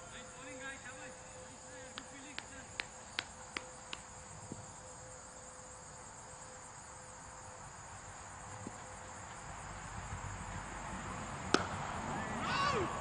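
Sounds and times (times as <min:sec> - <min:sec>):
insects chirring: 0:00.0 - 0:13.0
cricket ball hitting bat: 0:08.6 - 0:08.9, 0:11.4 - 0:13.0.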